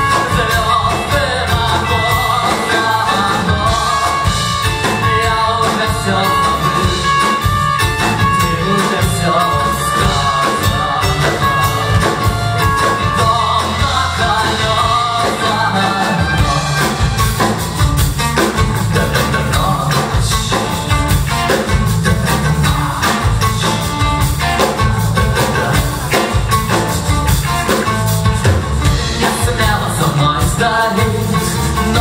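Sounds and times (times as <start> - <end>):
bass guitar: 0.0 - 32.0
drum kit: 0.0 - 32.0
electric guitars: 0.0 - 32.0.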